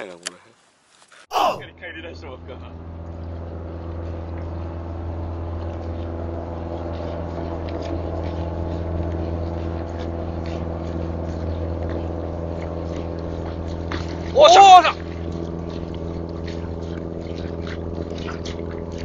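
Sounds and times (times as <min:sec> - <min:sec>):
motorboat engine running: 0:01.6 - 0:19.0
small water splashes: 0:09.7 - 0:19.0.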